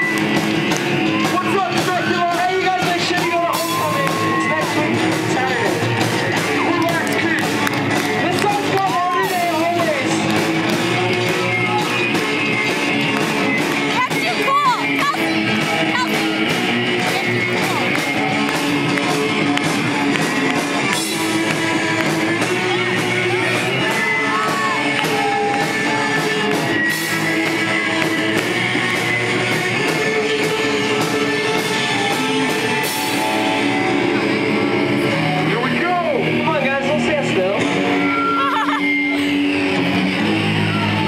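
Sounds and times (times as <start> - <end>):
bass guitar: 0.0 - 41.0
distorted electric guitars: 0.0 - 41.0
drum kit beat: 0.0 - 41.0
person singing: 20.9 - 34.4.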